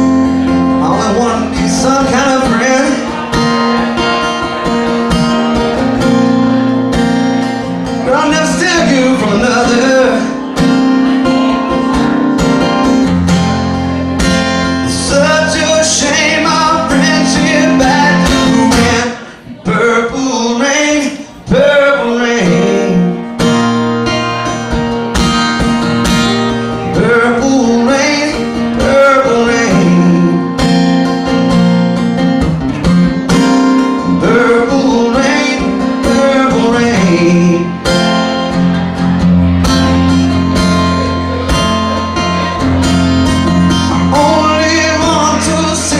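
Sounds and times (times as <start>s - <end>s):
bass line: 0.0s - 20.8s, 21.4s - 45.9s
guitar accompaniment: 0.0s - 45.9s
person singing: 7.8s - 10.6s, 14.7s - 24.7s, 26.3s - 31.1s, 33.8s - 38.5s, 40.0s - 45.9s.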